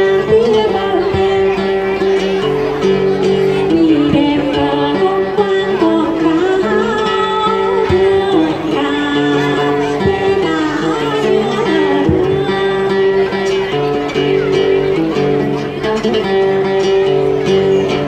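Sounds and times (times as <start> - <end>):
woman singing: 0.0 - 2.2, 3.5 - 13.6
plucked lute notes: 0.0 - 18.0.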